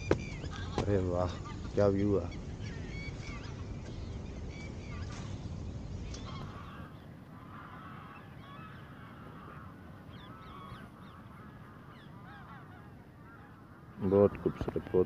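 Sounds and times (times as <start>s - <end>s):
geese honking: 6.1s - 15.0s.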